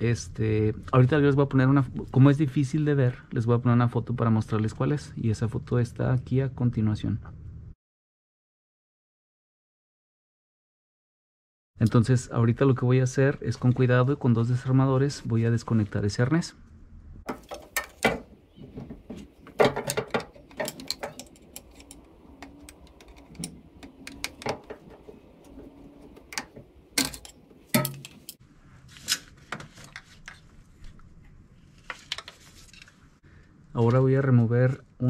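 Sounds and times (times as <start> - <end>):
sharp knocks: 17.3 - 21.2
screwdrivers clicking and scraping: 17.3 - 28.4.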